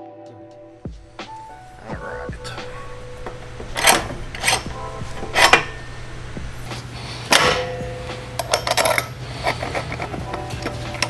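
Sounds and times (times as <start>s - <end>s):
metal washers clinking: 2.8s - 11.0s.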